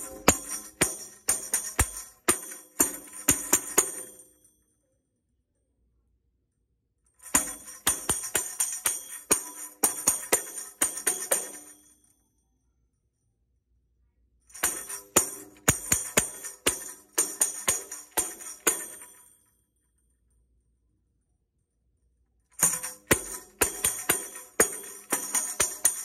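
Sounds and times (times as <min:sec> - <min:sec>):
tambourine beat: 0:00.0 - 0:04.4, 0:07.2 - 0:12.0, 0:14.5 - 0:19.3, 0:22.6 - 0:26.0.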